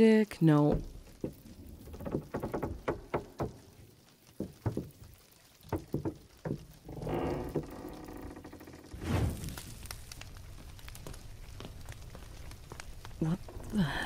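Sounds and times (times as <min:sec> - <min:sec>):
light knocks and taps: 0:00.7 - 0:08.5.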